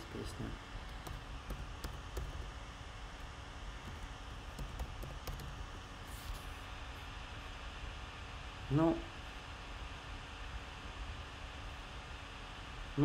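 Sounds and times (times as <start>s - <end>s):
keyboard key clicks: 0.9s - 2.4s, 3.9s - 5.6s.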